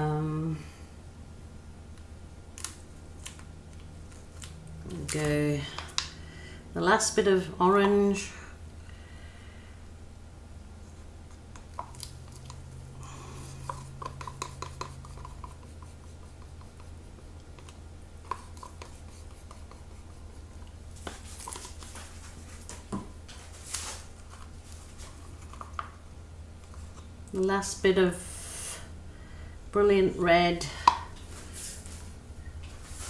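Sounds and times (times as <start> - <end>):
steady low hum: 0.0 - 33.0
stick scraping plastic cups: 11.4 - 22.6.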